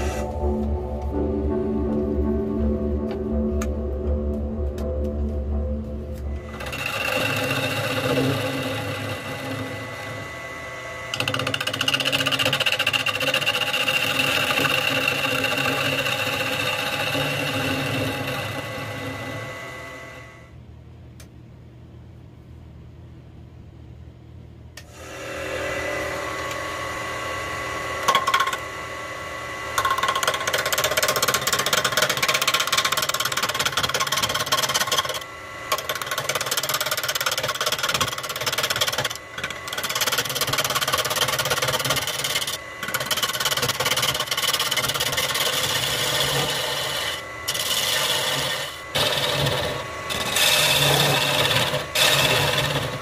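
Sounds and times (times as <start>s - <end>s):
wood lathe gouge scraping: 0.0s - 0.3s, 6.3s - 20.4s, 29.7s - 53.0s
low hum: 0.0s - 11.2s
lathe whine: 0.0s - 20.6s, 24.9s - 53.0s.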